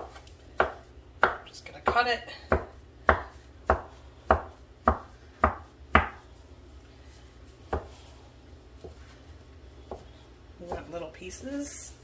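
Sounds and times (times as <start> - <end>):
knife chopping on wooden board: 0.0 - 6.2, 7.7 - 8.0.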